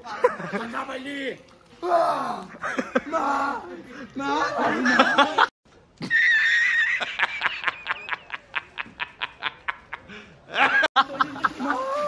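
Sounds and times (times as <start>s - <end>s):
man laughing: 2.5s - 5.5s, 6.1s - 12.0s.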